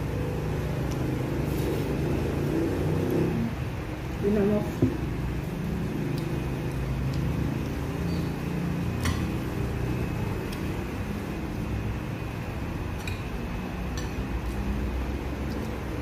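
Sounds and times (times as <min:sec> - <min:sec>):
light clicks and taps of eating: 0:06.1 - 0:07.4, 0:08.9 - 0:09.4, 0:10.4 - 0:10.8, 0:12.9 - 0:16.0.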